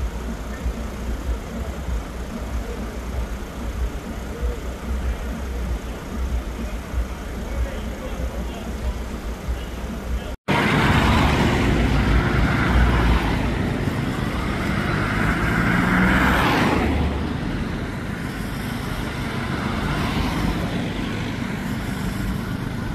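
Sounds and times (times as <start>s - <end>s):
street traffic driving past: 0.0s - 22.9s
vehicle passing close: 10.5s - 22.9s.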